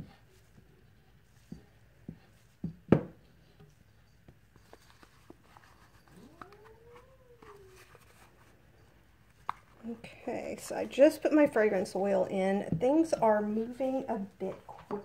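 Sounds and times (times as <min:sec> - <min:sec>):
cat meowing: 0:06.1 - 0:07.9.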